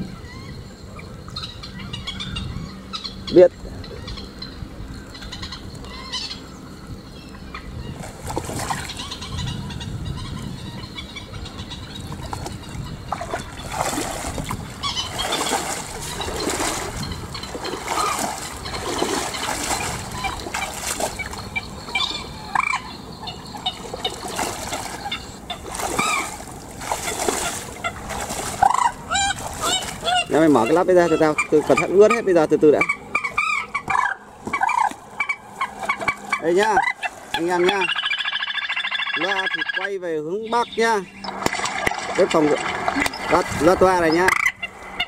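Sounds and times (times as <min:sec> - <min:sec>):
boots splashing through water: 0:08.0 - 0:09.1, 0:12.1 - 0:22.7, 0:23.5 - 0:32.0, 0:41.3 - 0:43.7
short bird calls: 0:14.8 - 0:32.0.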